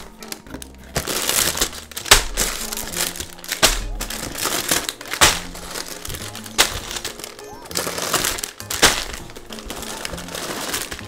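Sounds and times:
light background music: 0.0s - 11.0s
plastic bags crinkling: 0.0s - 11.0s.

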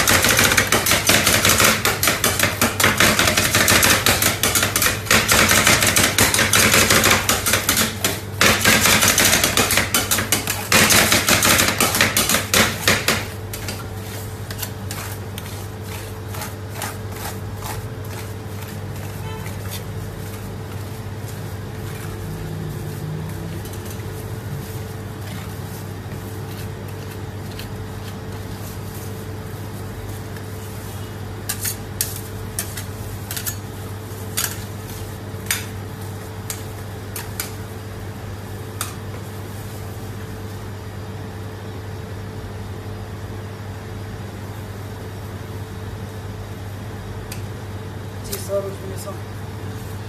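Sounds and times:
metal spatulas scraping cold plate: 8.8s - 21.0s.

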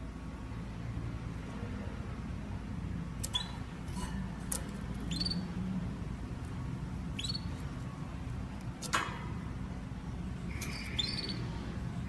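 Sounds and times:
steady low hum: 0.0s - 12.0s
canary chirping: 3.2s - 5.9s, 7.0s - 8.1s, 10.0s - 12.0s.

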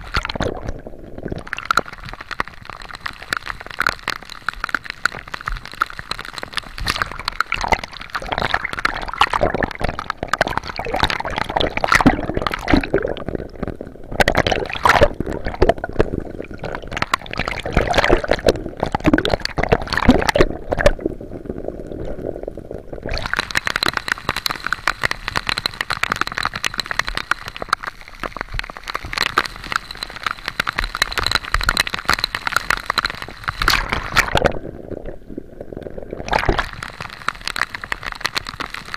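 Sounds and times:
sea water sloshing and gurgling: 0.0s - 38.9s.

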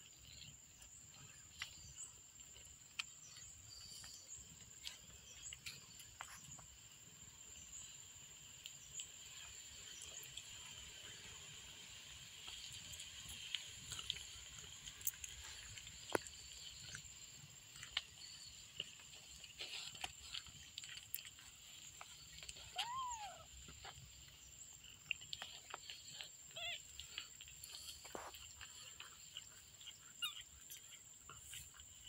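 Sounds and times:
cat grooming clicks and rustling: 9.8s - 32.0s
kitten mewing: 22.7s - 23.5s.

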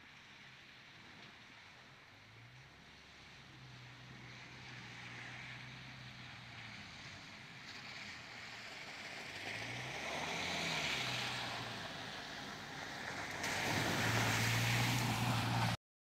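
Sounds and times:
car engine: 2.6s - 15.8s
car splashing through mud: 4.3s - 15.8s.

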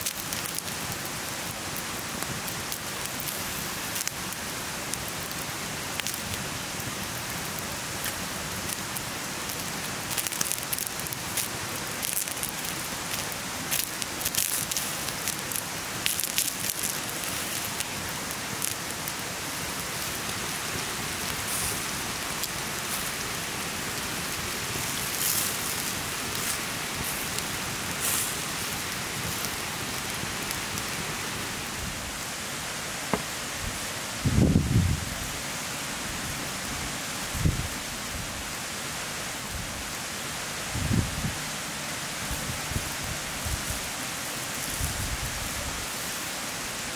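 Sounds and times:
crackles and pops: 0.0s - 31.8s
skewers sizzling over coals: 0.0s - 46.9s.

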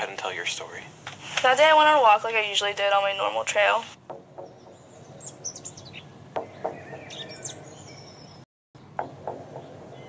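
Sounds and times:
birds chirping: 4.1s - 10.0s.

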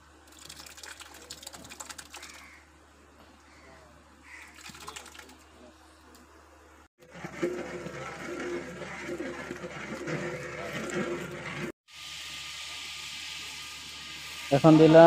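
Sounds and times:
yogurt sizzling in hot oil: 7.0s - 15.0s.

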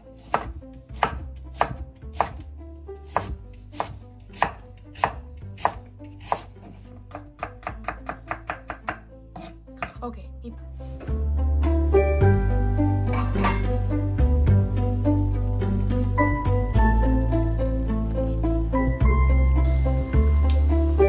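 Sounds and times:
knife chopping on wooden board: 0.2s - 2.4s, 3.0s - 10.0s.

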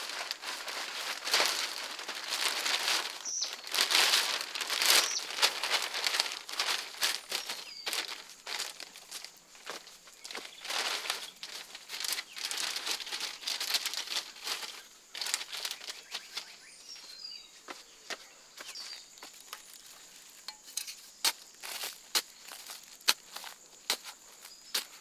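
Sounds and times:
plastic sheeting crinkling: 0.0s - 17.1s.

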